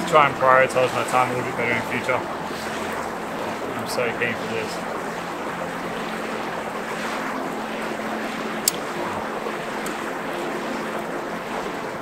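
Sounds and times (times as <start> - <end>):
campfire burning: 0.0 - 12.0
rushing outdoor noise: 0.0 - 12.0
sharp crack from fire: 8.6 - 9.0.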